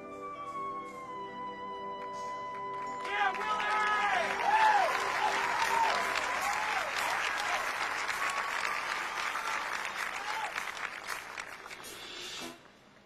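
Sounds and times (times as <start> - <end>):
audience applauding and cheering: 1.8 - 12.2
whoops from crowd: 3.1 - 10.7.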